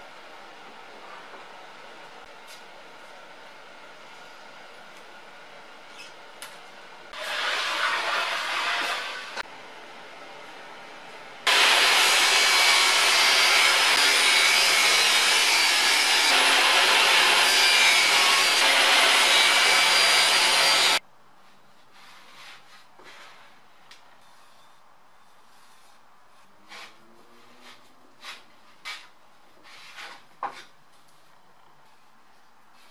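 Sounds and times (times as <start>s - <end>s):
table saw whining: 7.1s - 9.4s, 11.5s - 21.0s.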